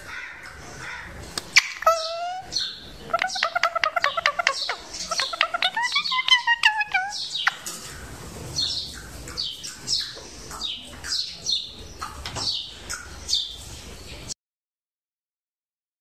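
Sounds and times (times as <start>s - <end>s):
parakeet chattering and chirping: 1.4s - 13.6s.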